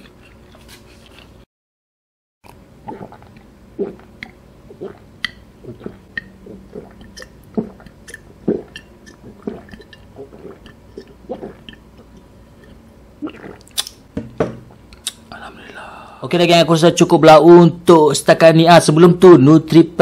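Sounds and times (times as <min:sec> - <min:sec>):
mouth clicks: 0:02.5 - 0:14.0, 0:14.9 - 0:15.4
person gulping a drink: 0:02.5 - 0:14.0.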